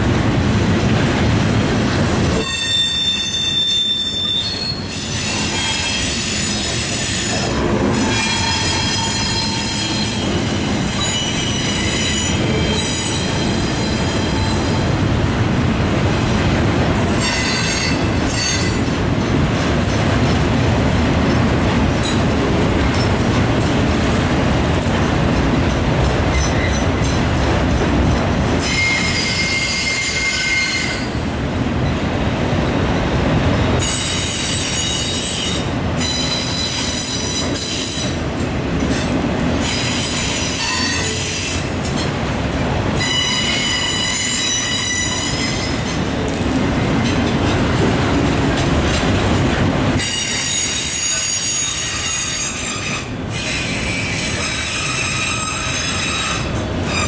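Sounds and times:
train wheels rumbling on rail: 0:00.0 - 0:57.0
high-pitched wheel squeal: 0:02.4 - 0:10.2.

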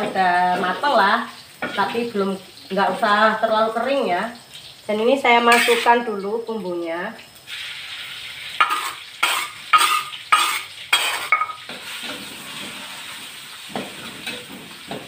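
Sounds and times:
spice paste sizzling in hot oil: 0:00.0 - 0:15.0
metal spatula scraping a wok: 0:05.5 - 0:06.0, 0:07.5 - 0:14.8.

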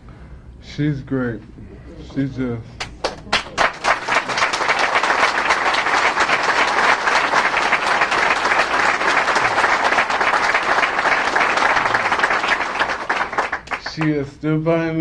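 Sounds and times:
audience applauding: 0:02.8 - 0:14.2.

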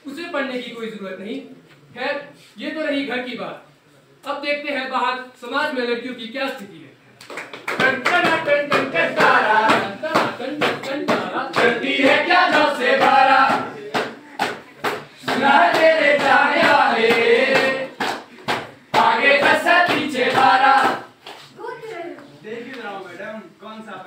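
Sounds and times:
rhythmic clapping: 0:07.2 - 0:21.5
group of voices singing: 0:07.8 - 0:21.2.

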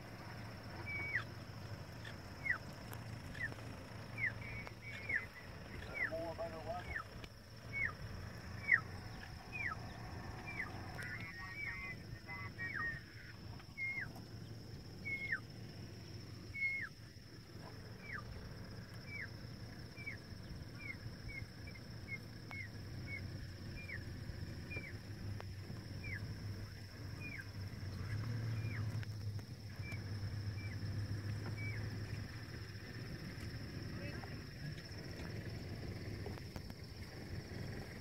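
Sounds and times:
low steady rumble: 0:00.0 - 0:38.0
bird whistling downward notes: 0:13.7 - 0:14.2.

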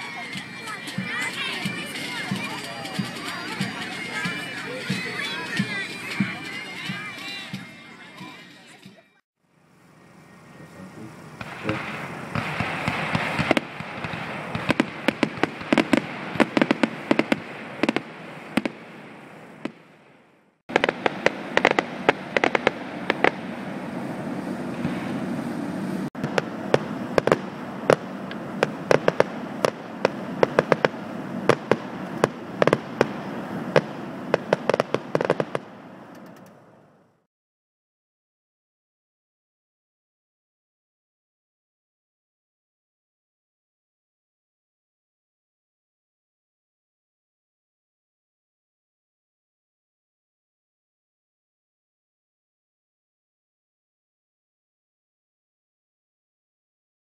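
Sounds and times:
continuous noisy background: 0:00.0 - 0:19.8, 0:20.7 - 0:37.2
fireworks popping and crackling: 0:11.4 - 0:20.0, 0:20.7 - 0:23.6, 0:24.7 - 0:25.2, 0:26.2 - 0:36.5.

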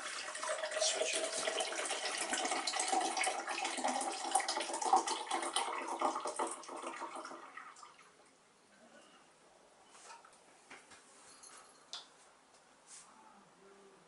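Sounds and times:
drink pouring into mug: 0:00.0 - 0:08.0.

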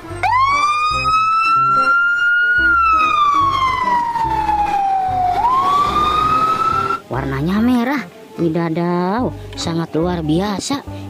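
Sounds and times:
fire engine siren wailing: 0:00.0 - 0:07.0.

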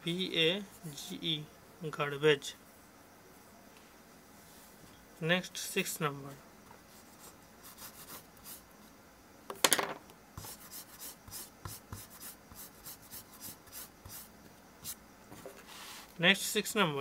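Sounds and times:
pencil scratching on paper: 0:07.0 - 0:08.6, 0:10.4 - 0:15.0.

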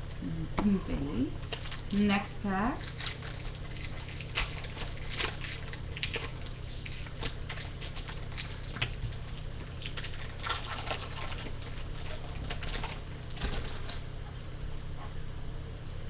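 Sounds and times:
foil wrapper crinkling and tearing: 0:01.4 - 0:14.0.

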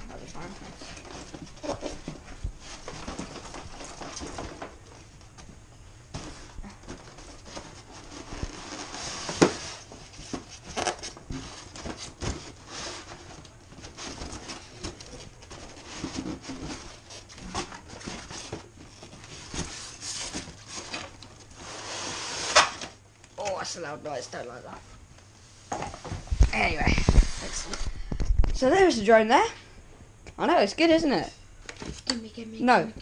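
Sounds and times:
packaging rustling and scraping: 0:00.7 - 0:05.4, 0:06.1 - 0:23.0.

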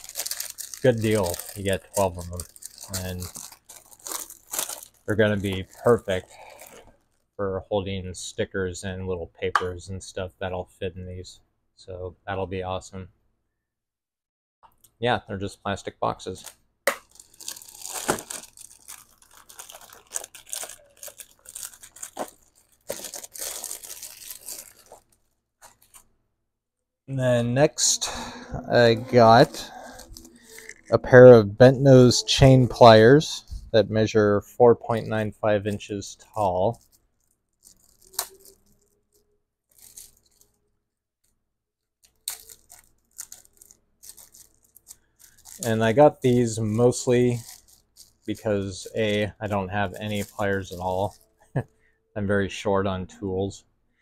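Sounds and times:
plastic packaging crinkling: 0:00.0 - 0:07.4, 0:16.3 - 0:26.1, 0:27.8 - 0:31.2, 0:34.9 - 0:41.4, 0:42.0 - 0:51.8.

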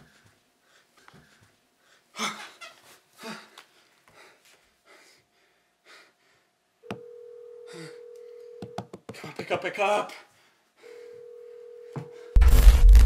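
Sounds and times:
person breathing heavily: 0:03.2 - 0:06.5.

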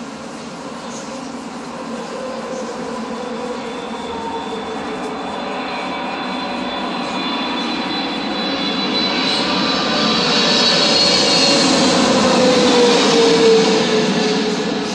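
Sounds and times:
jet airliner passing overhead: 0:00.0 - 0:14.9.

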